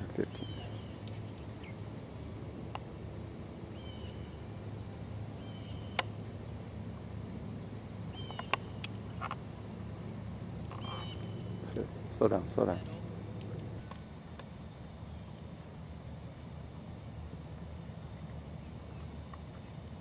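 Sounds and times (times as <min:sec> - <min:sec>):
steady low hum: 0:00.0 - 0:20.0
sharp clicks: 0:08.3 - 0:09.4.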